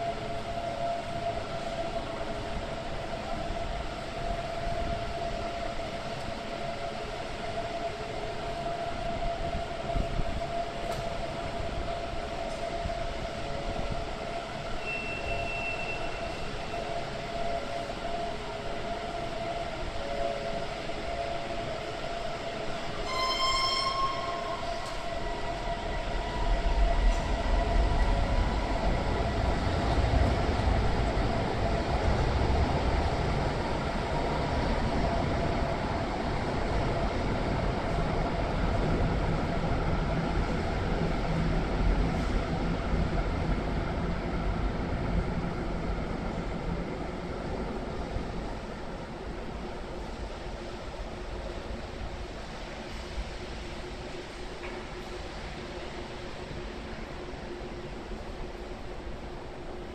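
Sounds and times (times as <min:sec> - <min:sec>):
tram electrical hum: 0:00.0 - 0:59.9
tram rumbling: 0:00.0 - 0:59.9
horn-like warning tone: 0:14.7 - 0:18.1, 0:19.7 - 0:27.5
short high beep: 0:23.1 - 0:25.0.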